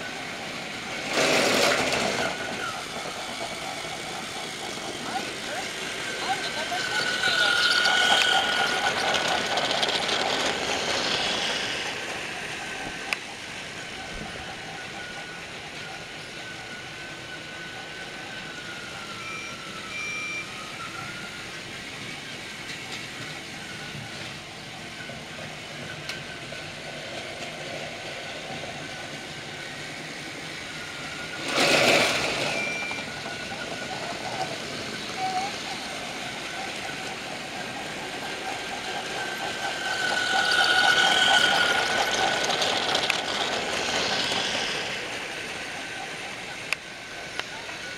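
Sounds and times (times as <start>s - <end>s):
toy train motor whine: 0.0s - 47.9s
high beeps: 32.3s - 33.6s.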